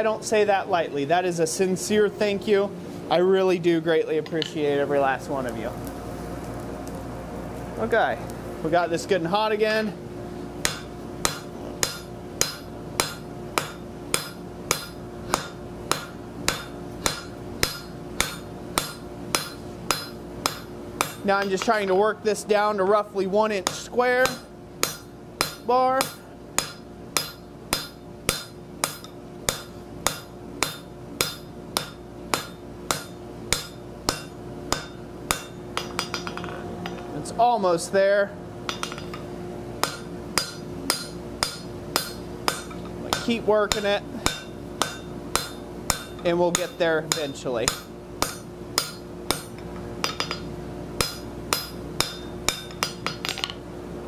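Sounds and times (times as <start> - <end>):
steady hum: 0.0 - 54.0
hammer striking steel on anvil: 10.6 - 21.9, 23.6 - 37.1, 38.6 - 53.6.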